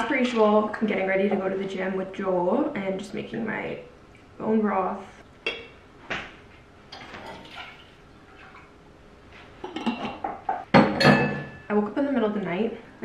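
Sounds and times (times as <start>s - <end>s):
glass jar clinking: 9.7s - 11.7s.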